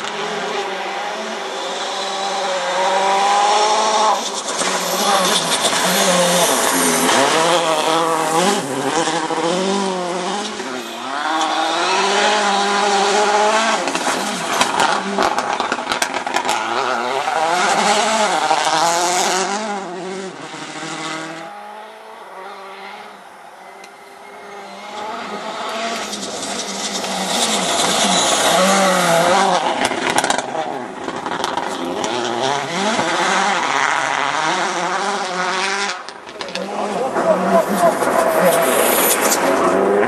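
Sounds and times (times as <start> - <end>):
rally car engine revving hard: 0.0 - 23.3, 24.4 - 40.0
exhaust pops and crackles: 4.2 - 9.1, 13.6 - 18.7, 25.9 - 34.3, 35.6 - 40.0.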